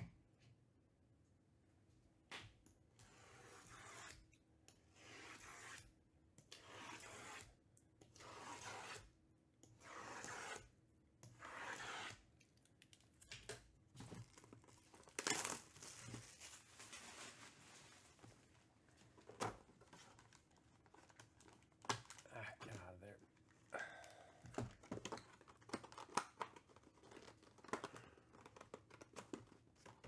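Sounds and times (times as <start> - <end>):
cellophane wrap tearing: 14.2 - 17.6.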